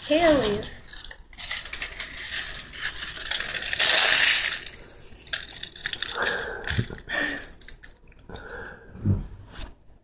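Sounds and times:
dry leaves crackling and crunching: 0:00.1 - 0:06.4.

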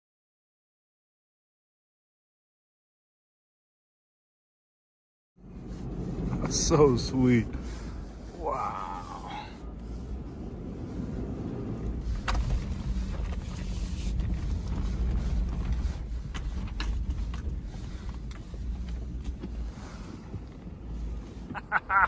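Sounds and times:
engine and road drone: 0:05.4 - 0:22.0
knocks and rattles from bumps: 0:12.0 - 0:19.7.

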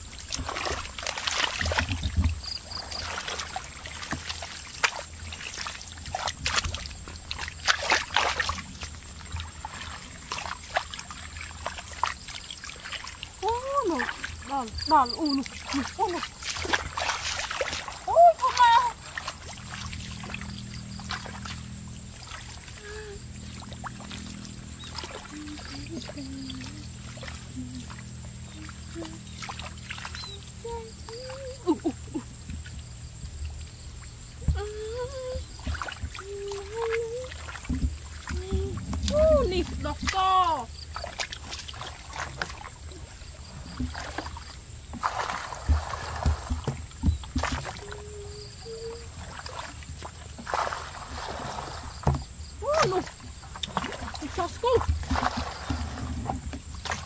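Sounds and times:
wash of water: 0:00.0 - 0:31.9, 0:34.5 - 0:57.0
muddy water sloshing and splashing: 0:00.0 - 0:57.0
steady low hum: 0:00.0 - 0:57.0
dull thuds: 0:43.6 - 0:47.8, 0:54.7 - 0:57.0.

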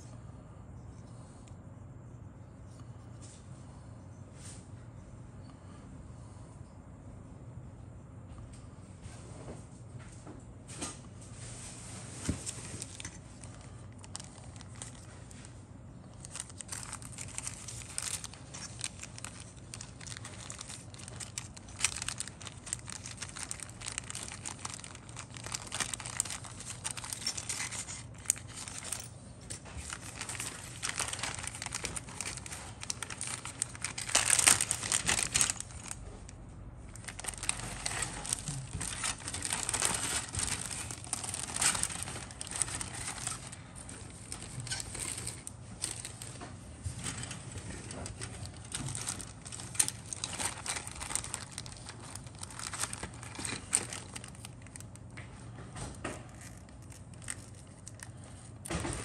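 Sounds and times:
plastic bags crinkling: 0:12.0 - 0:59.0.

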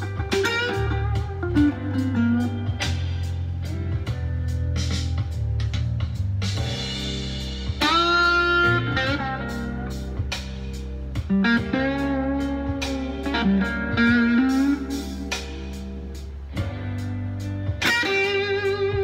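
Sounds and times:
overdriven electric guitar lead: 0:00.0 - 0:04.1, 0:07.8 - 0:19.0
bass: 0:00.0 - 0:19.0
drum hits: 0:04.0 - 0:11.9.

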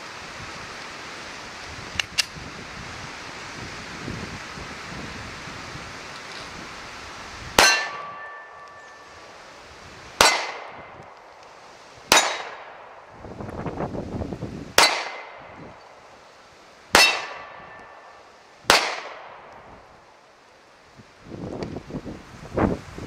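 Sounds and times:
pistol shots: 0:07.6 - 0:08.7, 0:10.2 - 0:10.9, 0:12.1 - 0:13.0, 0:14.8 - 0:15.5, 0:16.9 - 0:17.8, 0:18.7 - 0:19.5
bullet clanging on steel target: 0:07.6 - 0:09.1.

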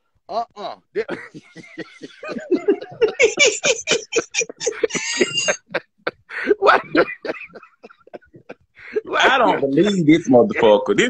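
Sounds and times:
person laughing hard: 0:01.0 - 0:09.7.

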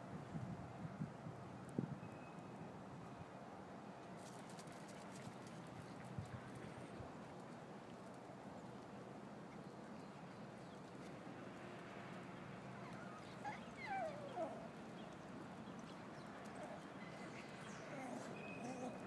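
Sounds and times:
puppy yipping: 0:12.8 - 0:14.7, 0:17.7 - 0:19.0.

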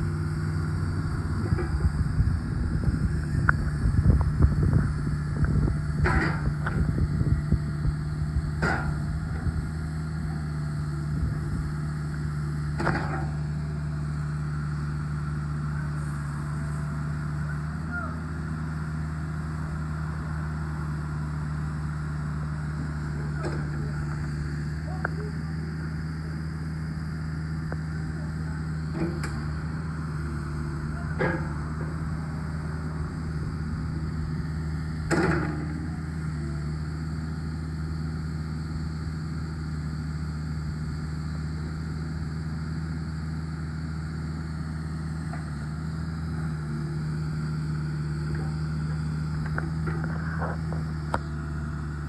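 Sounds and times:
diesel excavator engine running: 0:00.0 - 0:52.0.

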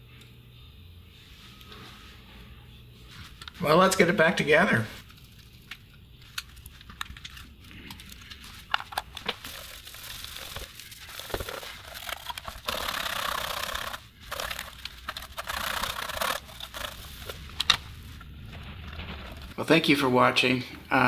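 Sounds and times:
tissue rubbing and crinkling: 0:09.4 - 0:17.5.

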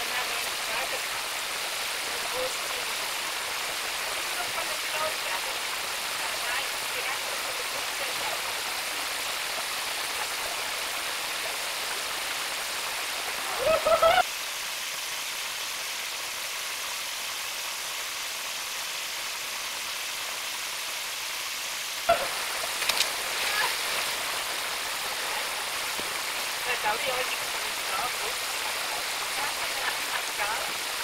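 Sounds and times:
waterfall rushing: 0:00.0 - 0:14.4, 0:22.0 - 0:31.0.

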